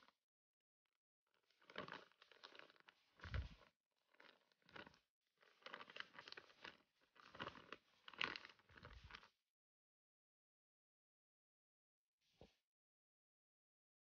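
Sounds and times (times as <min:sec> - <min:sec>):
plastic bag crinkling: 0:01.6 - 0:09.3.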